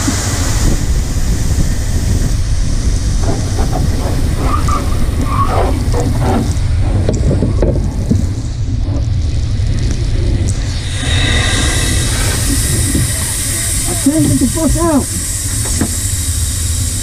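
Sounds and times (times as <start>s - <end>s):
fire extinguisher hissing rush: 0.0s - 6.9s, 10.6s - 17.0s
steady low rumble: 0.0s - 17.0s.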